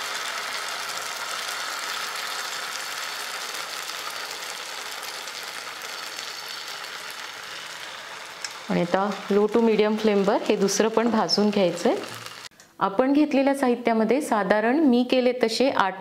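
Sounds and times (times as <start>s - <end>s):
batter sizzling in oil: 0.0s - 12.5s.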